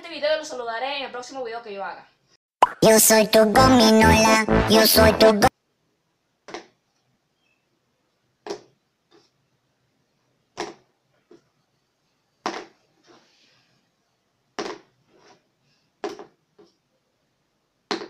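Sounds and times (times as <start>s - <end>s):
marker bouncing and clattering: 6.4s - 6.8s, 8.4s - 9.3s, 10.5s - 11.5s, 12.4s - 13.2s, 14.6s - 15.4s, 16.0s - 16.8s.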